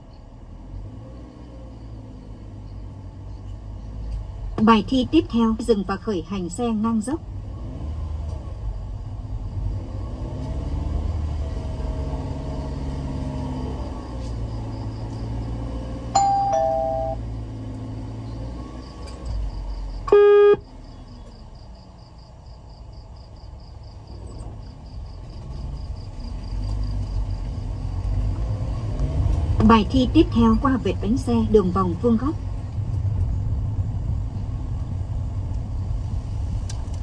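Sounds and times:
car engine revving: 7.2s - 21.6s, 23.9s - 37.0s
loud beep: 16.2s - 17.2s, 20.1s - 20.6s
two-note chime: 16.2s - 17.2s.

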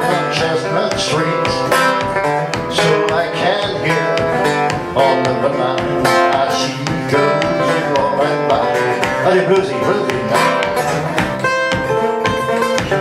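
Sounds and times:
banjo picking: 0.0s - 13.0s.

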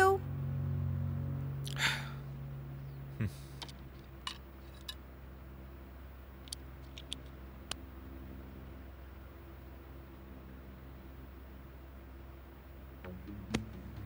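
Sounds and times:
eyeglasses clicking: 3.6s - 5.0s.

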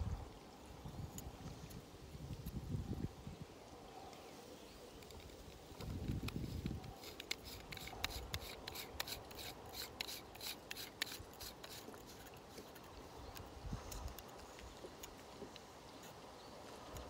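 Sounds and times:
plastic threads rasping and clicking: 5.0s - 14.4s.

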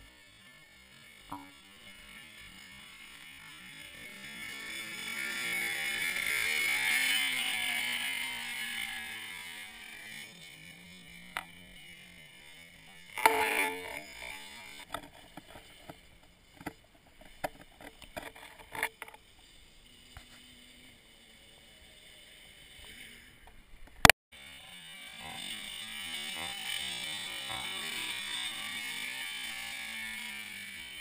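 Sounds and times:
quad engine revving: 0.0s - 31.0s.

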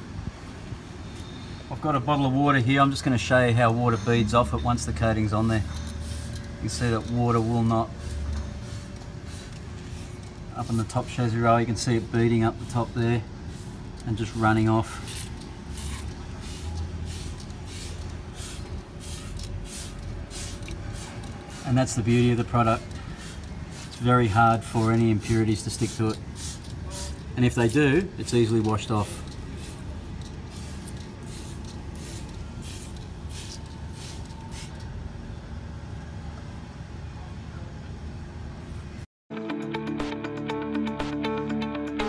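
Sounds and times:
steady low hum: 0.0s - 39.0s
spray bottle squirting: 13.5s - 21.8s, 22.7s - 34.8s.

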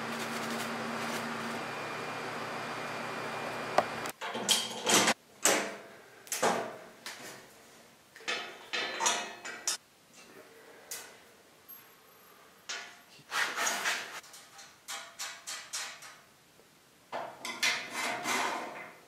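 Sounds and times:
tools set down on metal: 8.2s - 9.8s.

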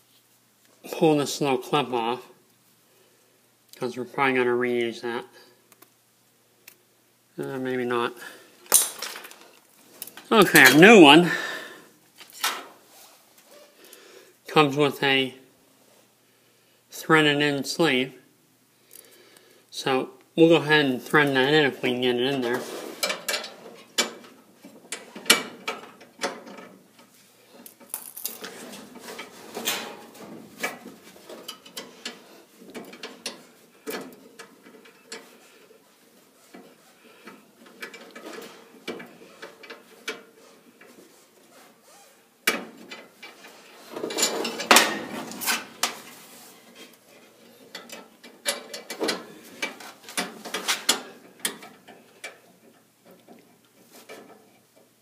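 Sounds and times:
small metal parts clicking and tapping: 27.6s - 28.5s.

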